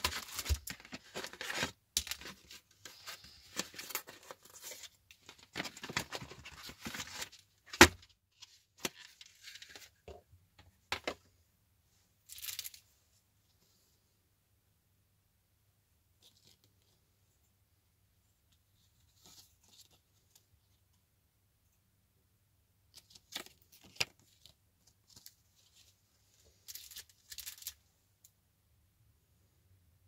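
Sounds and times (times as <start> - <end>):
plastic bag and paper crinkling: 0.0 - 7.4.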